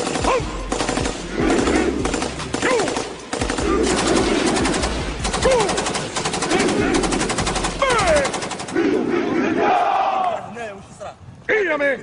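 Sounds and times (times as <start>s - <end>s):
machine gun firing bursts: 0.0s - 8.9s.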